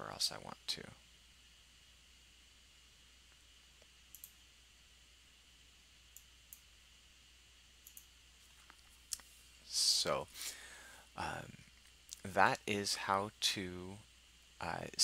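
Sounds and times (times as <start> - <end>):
low steady hum: 0.0 - 15.0
computer mouse clicks: 3.8 - 4.4, 7.8 - 9.3.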